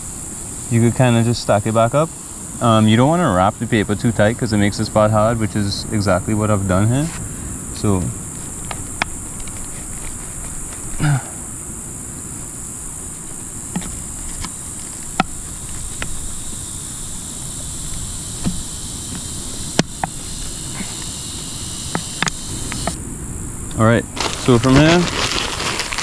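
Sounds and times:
high-pitched insect chorus: 0.0 - 26.0
twigs and paper snapping: 24.2 - 26.0.

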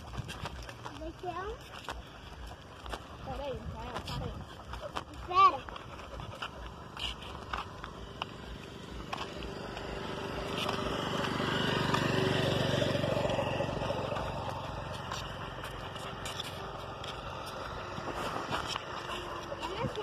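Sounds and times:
vehicle driving past: 6.2 - 20.0.

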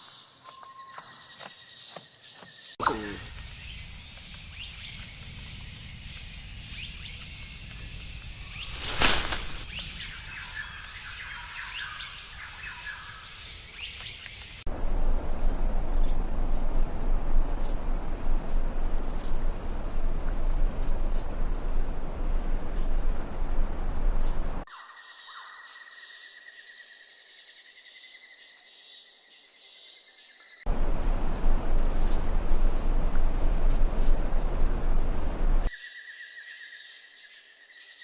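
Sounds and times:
insect drone: 0.0 - 38.0
low rumble: 14.7 - 24.7, 30.7 - 35.7.

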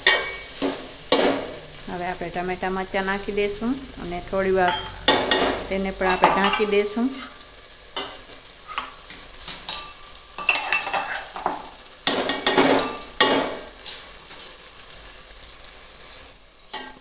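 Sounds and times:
light sizzle: 0.0 - 17.0
ladle scraping metal pot: 10.4 - 11.4.

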